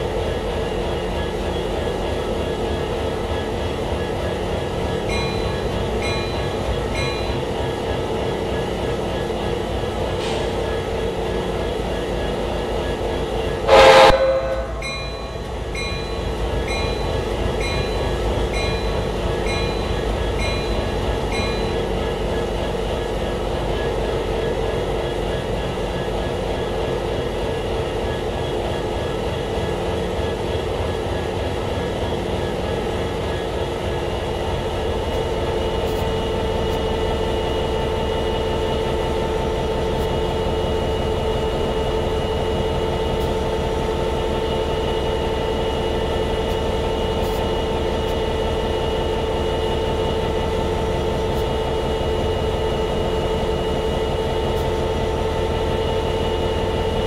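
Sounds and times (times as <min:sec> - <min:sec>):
diesel locomotive idling: 0:00.0 - 0:57.0.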